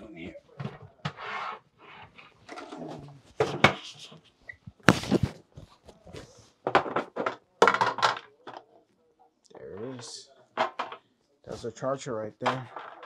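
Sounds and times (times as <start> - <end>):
boxes knocking and clattering: 6.6 - 8.7, 10.6 - 11.0, 12.4 - 13.0.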